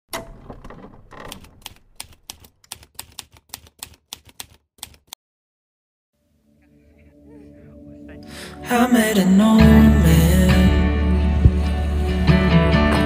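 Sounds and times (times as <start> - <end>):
typewriter keystrokes clacking: 1.2 - 5.2.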